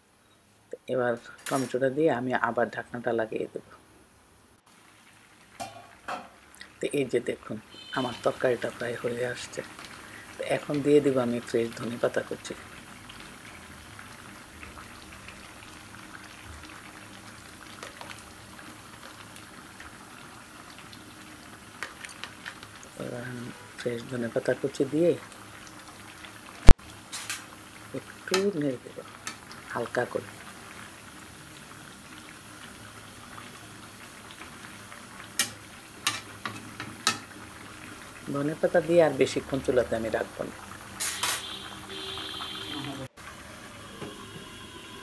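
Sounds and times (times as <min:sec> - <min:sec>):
curry bubbling: 0:04.7 - 0:45.0.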